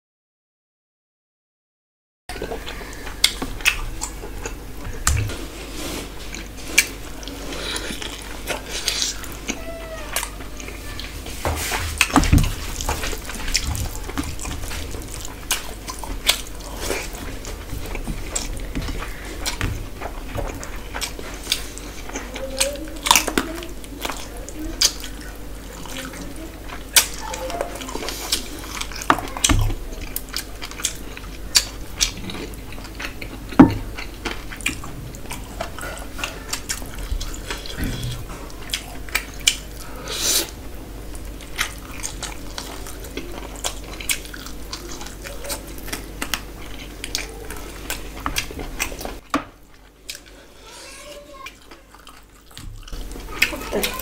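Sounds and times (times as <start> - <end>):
chewing and lip smacks: 12.8 - 39.7, 41.1 - 49.2.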